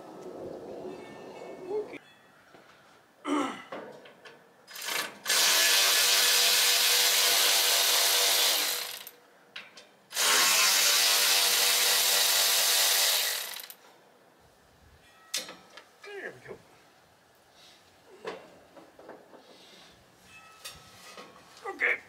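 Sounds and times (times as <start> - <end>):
power drill motor running: 4.7 - 9.1, 10.1 - 13.8.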